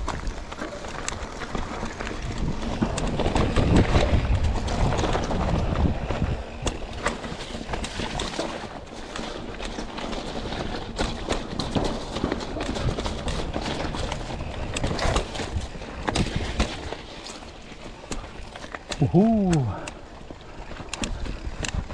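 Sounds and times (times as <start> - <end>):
bike rattling and knocking: 0.0 - 21.9
bike tyres rolling over rocks: 0.0 - 21.9
wind rumble on microphone: 1.4 - 8.5, 20.9 - 21.9.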